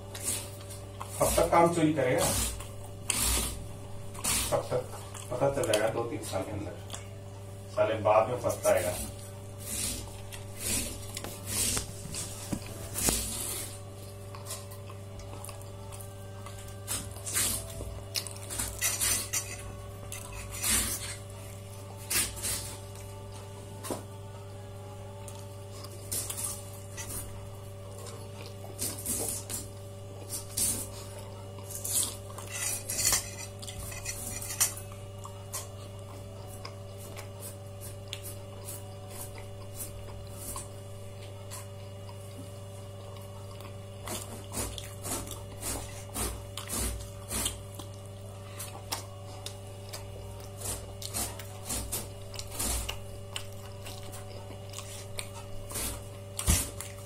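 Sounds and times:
dishes and cutlery clinking: 0:32.4 - 0:34.8.

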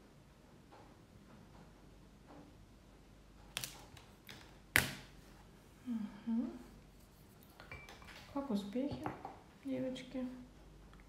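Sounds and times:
person humming: 0:05.8 - 0:06.8.

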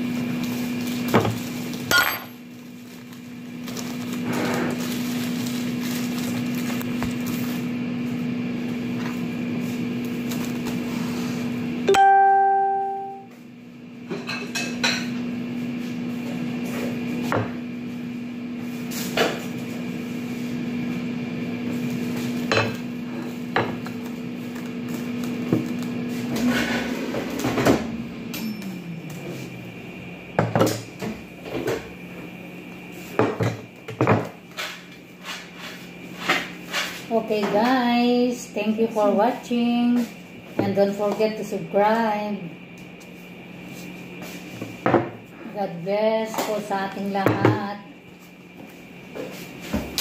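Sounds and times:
low appliance hum: 0:00.0 - 0:50.0
plastic cling film crinkling: 0:00.3 - 0:01.8, 0:02.5 - 0:07.7, 0:10.0 - 0:10.9
short pitched tone: 0:11.9 - 0:13.3.

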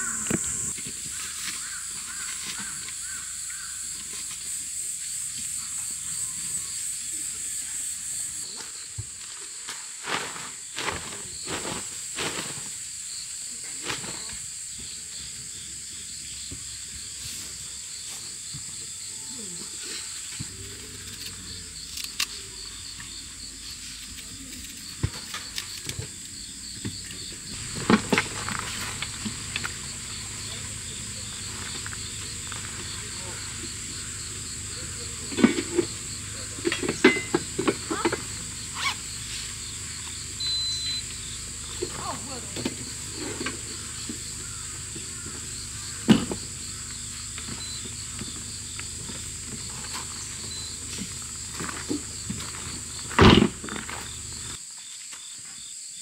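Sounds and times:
high-pitched insect chorus: 0:00.0 - 0:56.0
camp kitchen items clinking: 0:34.8 - 0:38.5.

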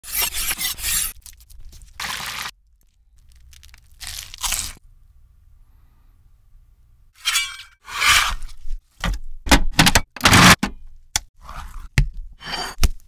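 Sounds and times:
crunching bites of fried chicken: 0:02.8 - 0:04.8.

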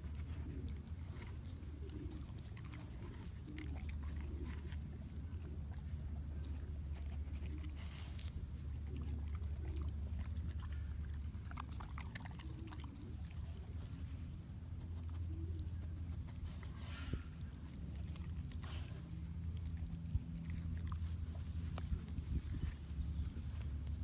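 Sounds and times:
dog crunching watermelon: 0:00.0 - 0:24.0
steady low rumble: 0:00.0 - 0:24.0.

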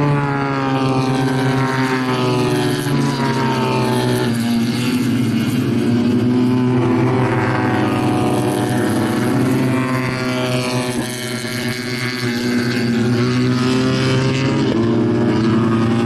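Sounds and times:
race car engines accelerating: 0:00.0 - 0:16.0.

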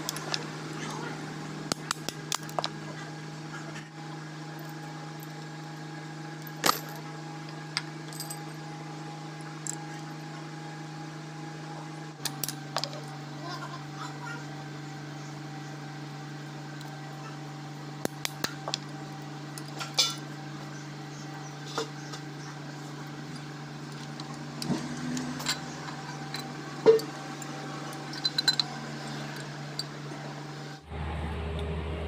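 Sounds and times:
steady low hum: 0:00.0 - 0:32.0
metal parts clinking: 0:06.4 - 0:07.0, 0:08.1 - 0:08.5, 0:25.3 - 0:29.9.

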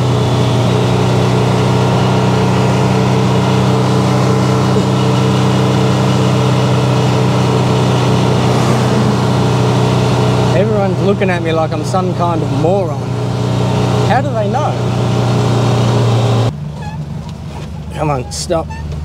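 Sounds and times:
truck engine running steadily: 0:00.0 - 0:19.0.

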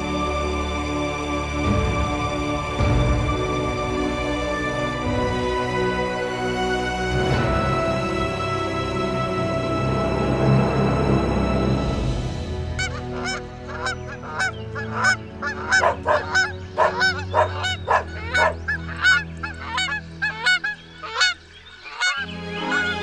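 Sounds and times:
geese honking: 0:12.8 - 0:23.0.

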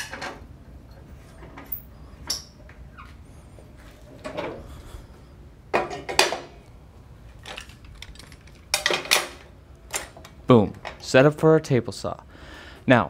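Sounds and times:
metal parts clanking and rattling: 0:07.4 - 0:11.1.

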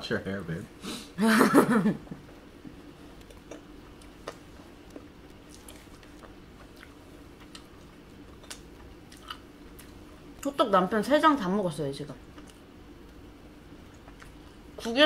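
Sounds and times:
people chewing: 0:02.7 - 0:10.1, 0:13.8 - 0:15.0.

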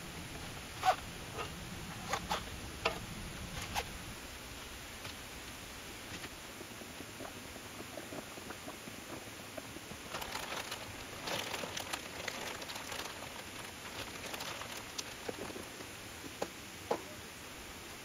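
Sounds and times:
plastic bag crinkling: 0:10.0 - 0:15.7.

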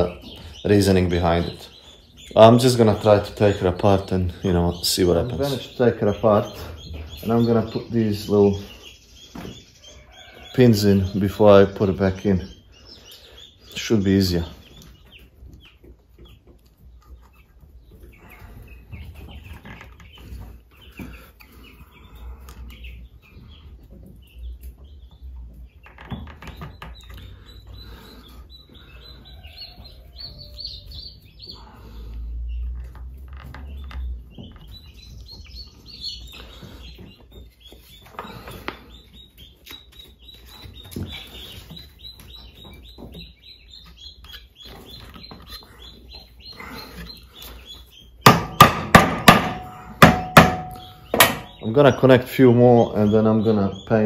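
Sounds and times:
small birds chirping: 0:00.0 - 0:54.0
knocks of wooden frames: 0:48.2 - 0:51.8.

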